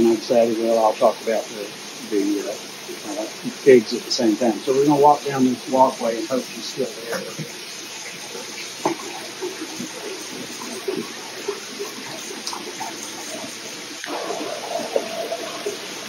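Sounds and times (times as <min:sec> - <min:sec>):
water running and trickling: 0:00.0 - 0:16.0.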